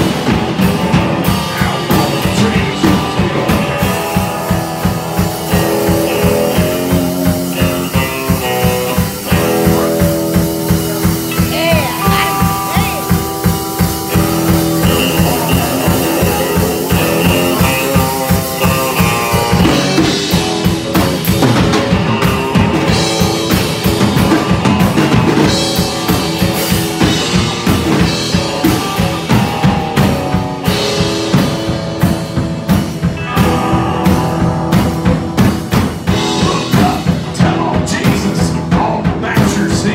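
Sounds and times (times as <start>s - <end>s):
drum kit beat: 0.0s - 39.9s
electric guitar lead notes: 0.0s - 39.9s.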